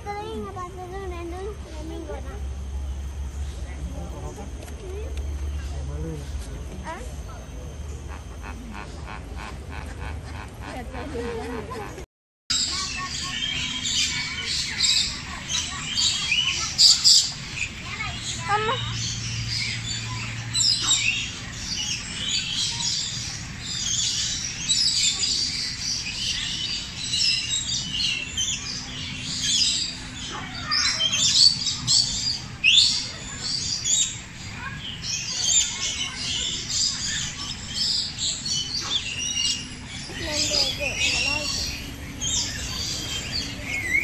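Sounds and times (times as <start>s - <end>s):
flamingos calling: 7.9s - 12.0s.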